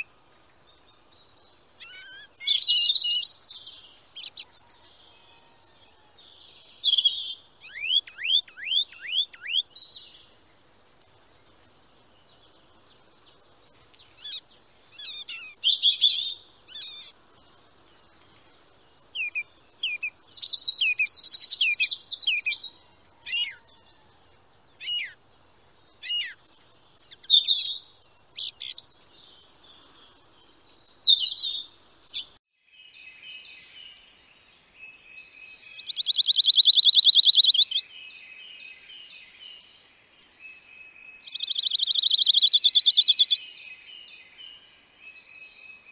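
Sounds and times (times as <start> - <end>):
songbirds chirping and singing: 0.0 - 45.9.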